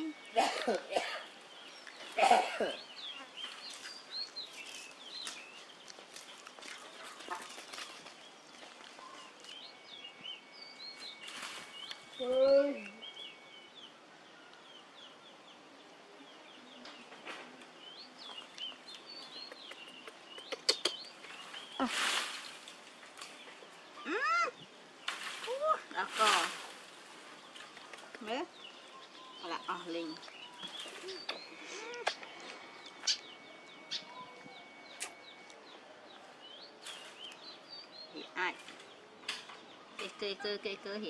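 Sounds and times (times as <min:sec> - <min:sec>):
small birds chirping: 0:00.0 - 0:41.0
burst of rustling: 0:21.6 - 0:23.3.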